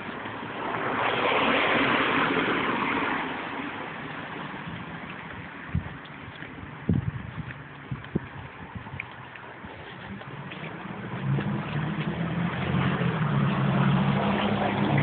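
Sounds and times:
car passing by: 0:00.0 - 0:05.3, 0:09.8 - 0:15.0.

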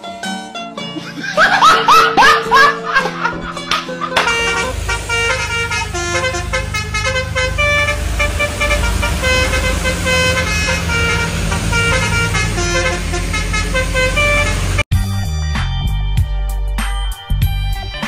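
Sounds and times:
vehicle engine running: 0:02.2 - 0:14.9
musical air horn playing a tune: 0:03.8 - 0:14.8.

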